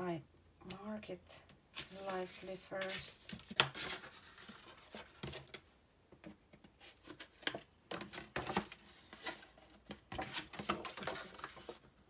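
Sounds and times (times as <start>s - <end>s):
paper rustling: 1.8s - 5.6s, 6.8s - 11.9s.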